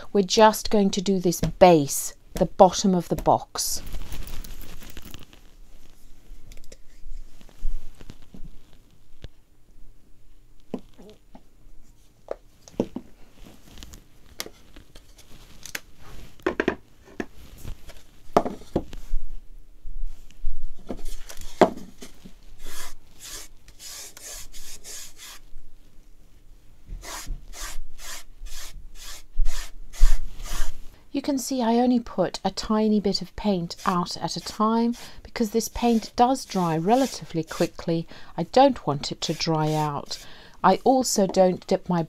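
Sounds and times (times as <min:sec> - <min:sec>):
sponge brush rubbing paint: 0:22.6 - 0:25.5, 0:27.0 - 0:30.8, 0:33.5 - 0:40.3.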